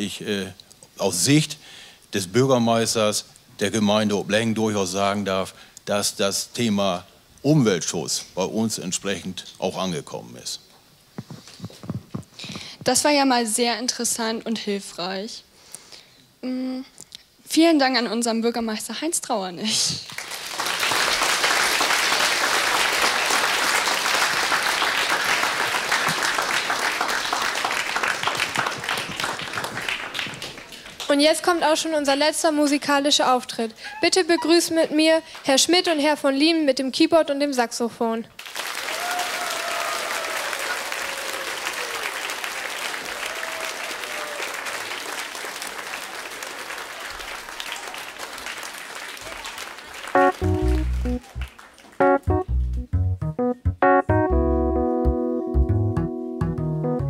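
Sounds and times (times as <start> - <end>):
audience applauding: 20.1 - 31.2, 38.4 - 52.8.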